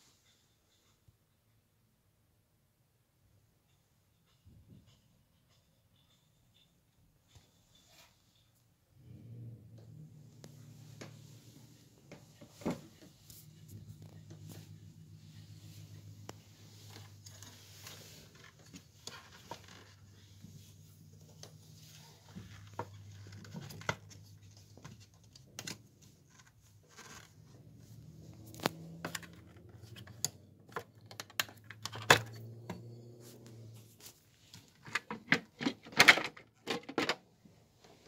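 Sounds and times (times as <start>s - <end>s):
juicer clicks and knocks: 34.9s - 37.2s.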